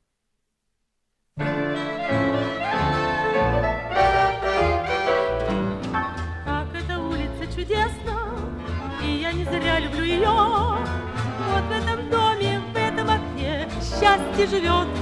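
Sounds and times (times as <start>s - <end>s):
instrumental ensemble: 1.4s - 6.8s, 8.4s - 15.0s
woman singing with vibrato: 6.5s - 8.4s, 9.0s - 15.0s.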